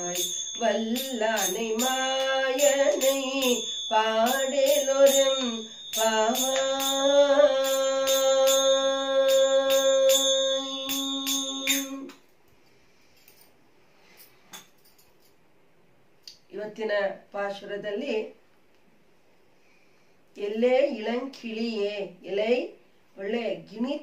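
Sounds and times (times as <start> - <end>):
metal hand cymbals ringing: 0.0 - 12.2
woman singing: 0.0 - 12.2.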